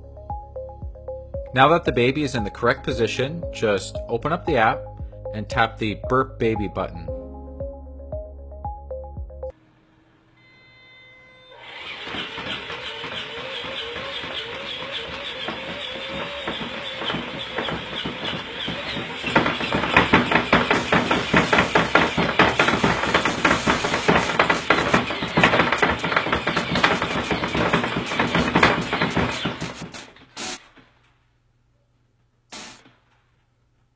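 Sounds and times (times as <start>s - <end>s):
motor whir: 10.4s - 30.6s.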